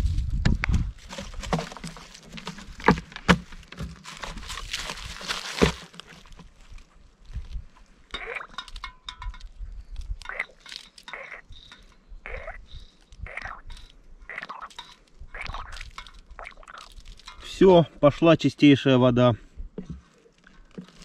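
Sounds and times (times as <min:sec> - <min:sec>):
gear rustling: 0:00.9 - 0:07.8.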